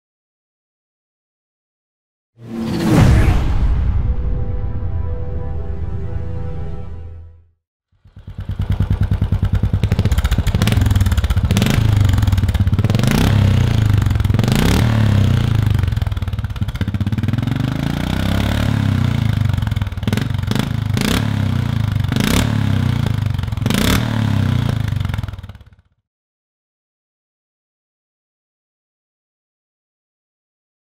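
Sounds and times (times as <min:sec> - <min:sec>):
motorcycle engine idling and revving: 0:07.9 - 0:26.0.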